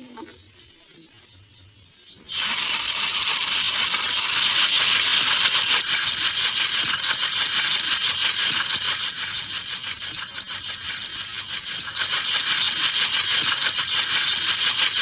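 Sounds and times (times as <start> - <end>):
steady crackling hiss: 0.0 - 10.0.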